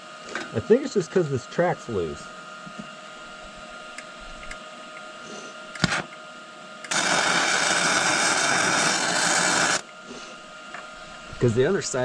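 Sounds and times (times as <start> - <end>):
welding arc sizzling hiss: 5.2 - 6.2, 6.8 - 12.0.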